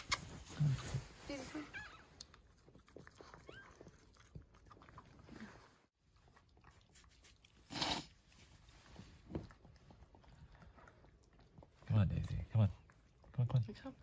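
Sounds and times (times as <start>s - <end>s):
dog licking and snuffling: 0.0s - 14.0s.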